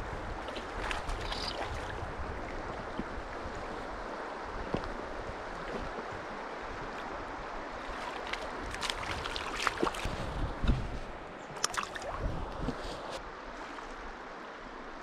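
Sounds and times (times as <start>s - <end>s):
fast-flowing stream water: 0.0s - 10.5s
small water splash: 0.4s - 2.1s, 7.8s - 10.4s, 11.5s - 14.0s.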